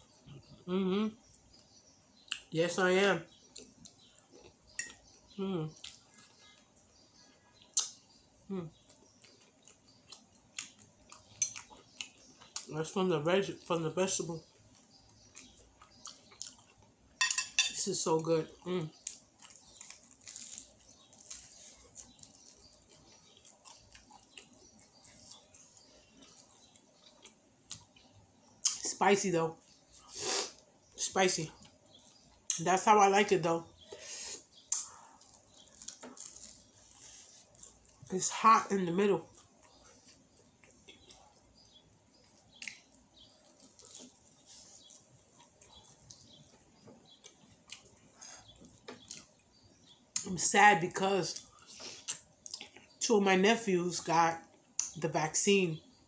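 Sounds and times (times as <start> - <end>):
faint chewing: 3.3 - 13.0, 13.6 - 17.3, 18.4 - 29.0, 29.6 - 32.6, 33.6 - 50.3, 51.2 - 53.0
mouth clicks and smacks: 7.6 - 8.0, 34.6 - 35.4, 51.8 - 52.9.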